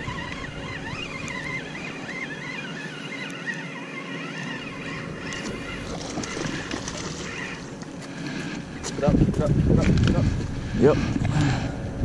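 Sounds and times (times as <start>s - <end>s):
fishing reel cranking: 0.0s - 7.6s
steady low hum: 0.0s - 12.0s.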